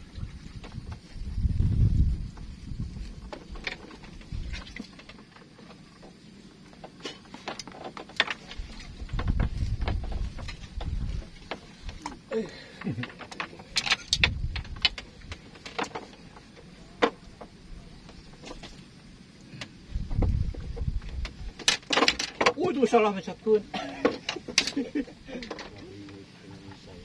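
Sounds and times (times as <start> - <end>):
low handling thumps: 8.6 - 13.0, 19.9 - 21.6.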